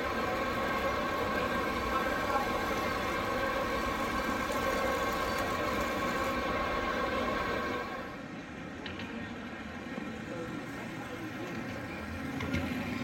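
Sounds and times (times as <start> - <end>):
model excavator whine: 0.0 - 8.2.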